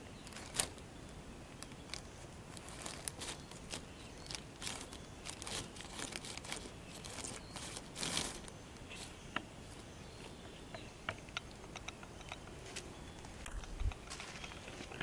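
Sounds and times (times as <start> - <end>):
crinkling plastic sheet: 0.0 - 0.8, 1.6 - 9.1.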